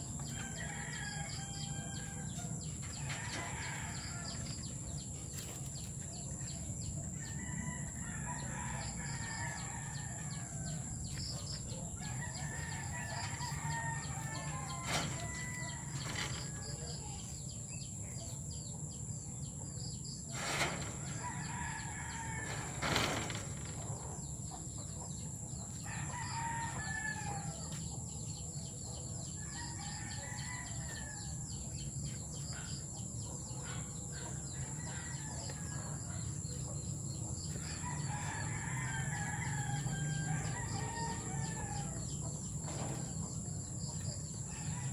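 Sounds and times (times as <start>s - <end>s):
rooster crowing: 0.2s - 4.6s, 12.0s - 16.7s, 20.4s - 23.6s, 25.8s - 27.7s, 37.6s - 42.2s.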